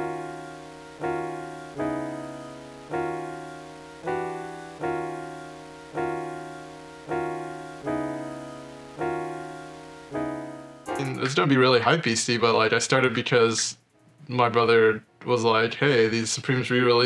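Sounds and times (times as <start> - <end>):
keyboard chord: 0.0 - 11.8.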